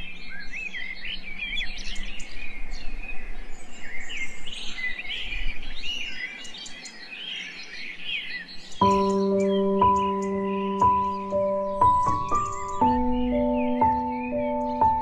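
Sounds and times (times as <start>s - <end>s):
small birds chirping: 0.0s - 15.0s.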